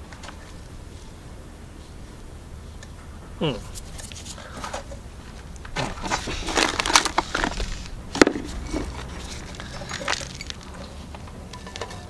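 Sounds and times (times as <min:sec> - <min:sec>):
metal trowel scraping soil: 0:05.8 - 0:12.0.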